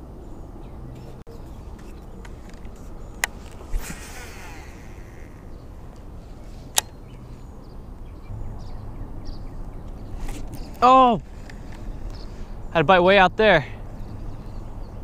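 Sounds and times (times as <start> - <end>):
reel spool whirring: 2.8 - 6.0
fishing cast whoosh: 3.2 - 5.5.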